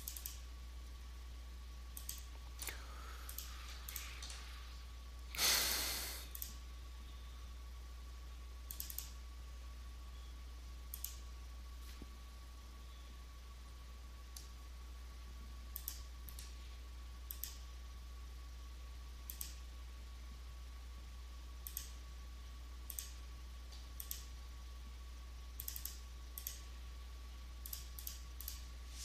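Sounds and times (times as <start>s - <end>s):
computer mouse clicking: 0.0s - 0.4s, 2.0s - 2.3s, 3.3s - 4.4s, 6.3s - 6.6s, 8.7s - 9.2s, 10.9s - 11.2s, 15.7s - 16.6s, 17.3s - 17.6s, 19.3s - 19.6s, 21.6s - 22.0s, 22.9s - 23.2s, 24.0s - 24.3s, 25.6s - 26.7s, 27.6s - 28.7s
steady low hum: 0.0s - 29.0s.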